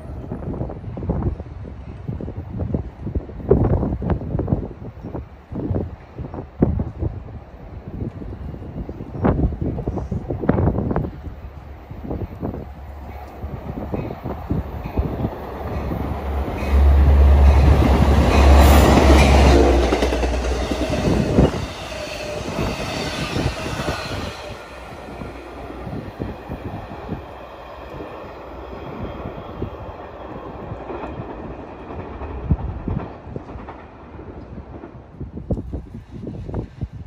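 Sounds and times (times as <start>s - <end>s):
train rumbling past: 0.0s - 37.0s
train wheels clacking on rails: 13.0s - 36.6s.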